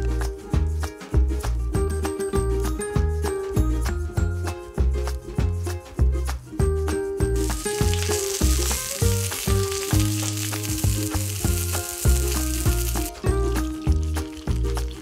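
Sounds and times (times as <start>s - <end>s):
background music with steady beat: 0.0s - 15.0s
sausages sizzling in a pan: 7.3s - 15.0s.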